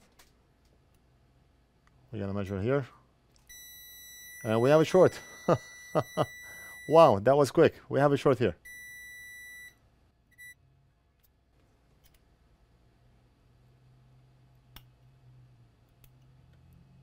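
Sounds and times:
faint low hum: 0:00.0 - 0:17.0
multimeter beeping: 0:03.5 - 0:07.2, 0:08.6 - 0:10.6.

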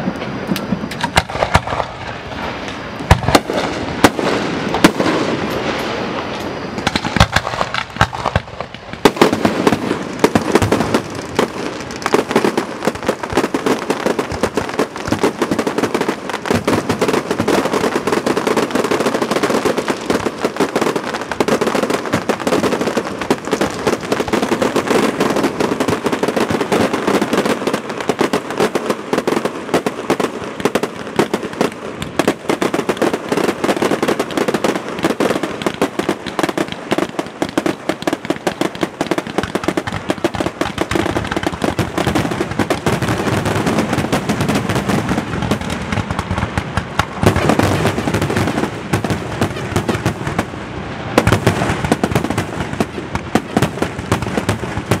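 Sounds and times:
fireworks bursting and booming: 0:00.0 - 0:55.0
fireworks crackling: 0:00.0 - 0:55.0.

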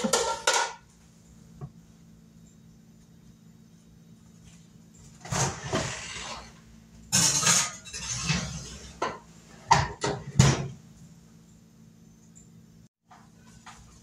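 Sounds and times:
glass dish scraping and rattling: 0:05.2 - 0:10.5.

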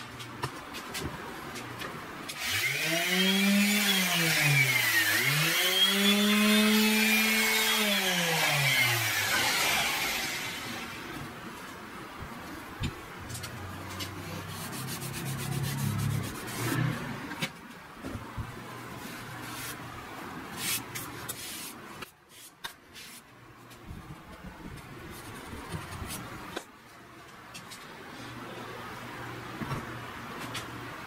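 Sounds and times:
hand rubbing wood: 0:14.0 - 0:17.0.

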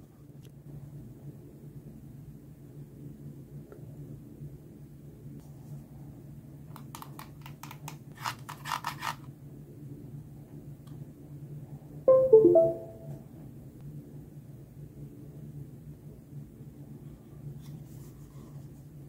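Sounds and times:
electronic chime: 0:12.1 - 0:13.2.

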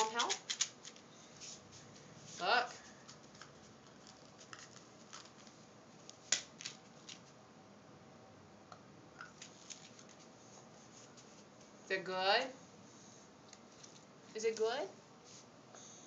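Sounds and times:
small items clicking and rustling: 0:00.0 - 0:01.1, 0:03.1 - 0:05.6.

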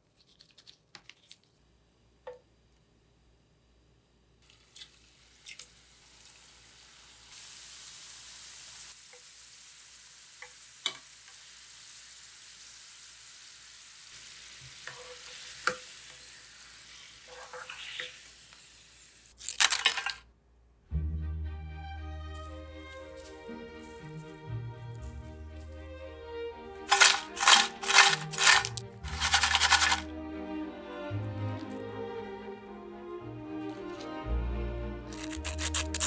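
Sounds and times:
potato slices sizzling in oil: 0:04.4 - 0:20.0, 0:26.8 - 0:30.0, 0:35.1 - 0:36.0.

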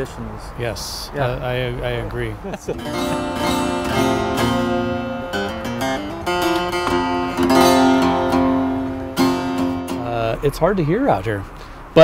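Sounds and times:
acoustic guitar strummed chords: 0:02.8 - 0:10.4.

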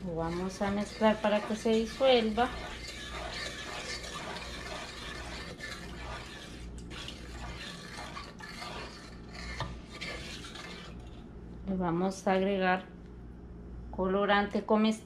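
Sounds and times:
wooden spoon scraping a saucepan: 0:00.0 - 0:11.2.

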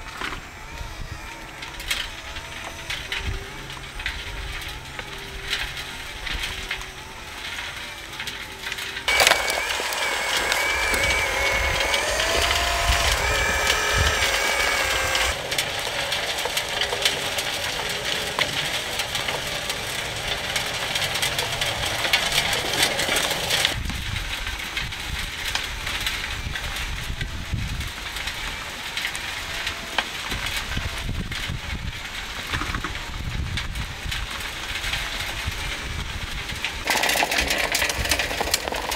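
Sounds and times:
electric gear motors whining: 0:00.0 - 0:23.8, 0:36.6 - 0:38.9
dirt and rocks rattling: 0:01.5 - 0:38.9.

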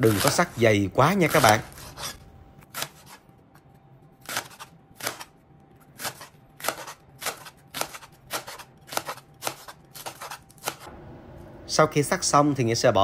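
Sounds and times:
knife slicing cabbage on metal board: 0:00.0 - 0:03.3, 0:04.2 - 0:10.9.

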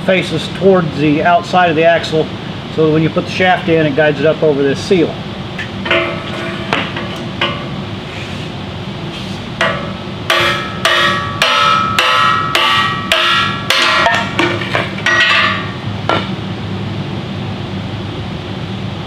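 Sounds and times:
steel bar striking metal: 0:05.8 - 0:07.8, 0:09.6 - 0:16.4.

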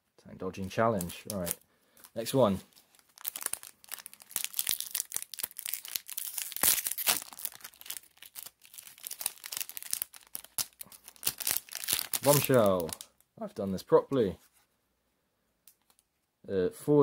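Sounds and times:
trading cards rustling and snapping: 0:00.6 - 0:13.2.

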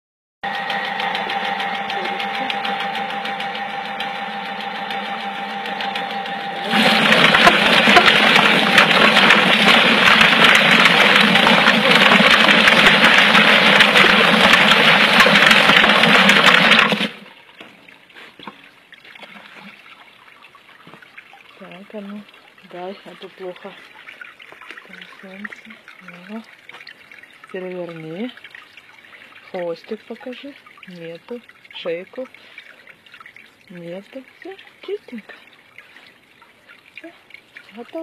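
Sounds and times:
motor hum: 0:00.4 - 0:17.4
hose spraying water: 0:00.6 - 0:17.2
dense clattering: 0:06.7 - 0:17.2.

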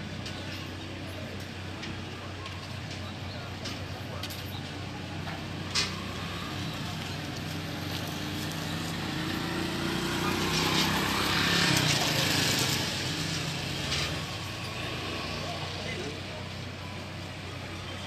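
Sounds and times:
street traffic hum: 0:00.0 - 0:18.0
vehicle passing by: 0:05.6 - 0:16.6.

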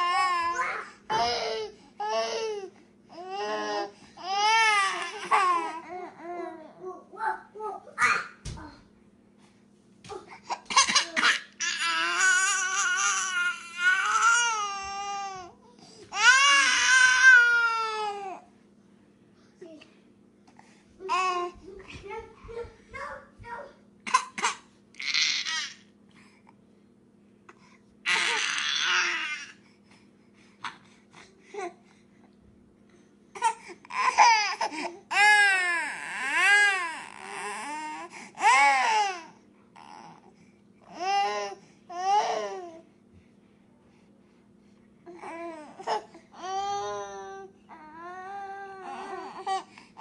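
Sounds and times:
baby crying: 0:10.8 - 0:15.5, 0:16.1 - 0:18.4, 0:28.1 - 0:29.5, 0:45.2 - 0:49.7.

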